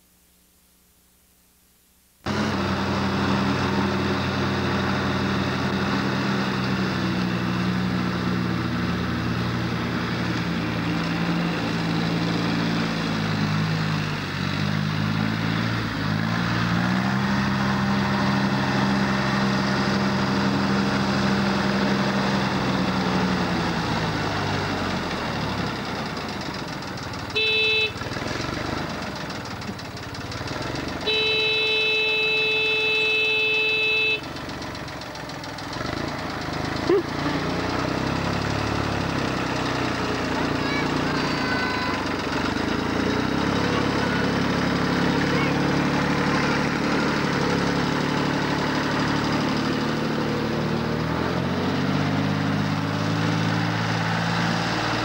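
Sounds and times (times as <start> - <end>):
tractor engine running: 2.2 - 55.0
brief high tone: 31.1 - 34.3, 40.5 - 42.1, 45.1 - 47.0.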